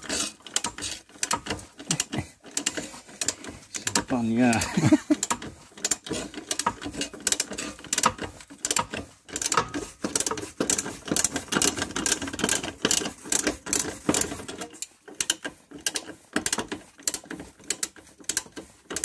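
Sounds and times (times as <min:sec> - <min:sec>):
ratchet wrench clicking: 0:00.1 - 0:19.0.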